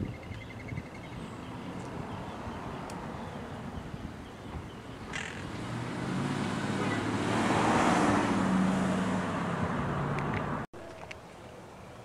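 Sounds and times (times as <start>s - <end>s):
vehicle passing: 4.9s - 10.7s.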